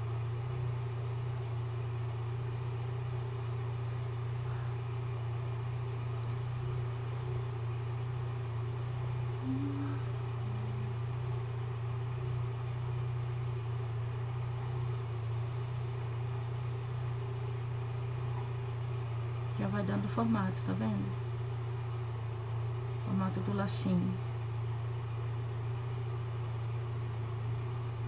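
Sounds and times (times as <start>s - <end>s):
steady low hum: 0.0s - 28.0s
faint even hiss: 9.4s - 11.0s.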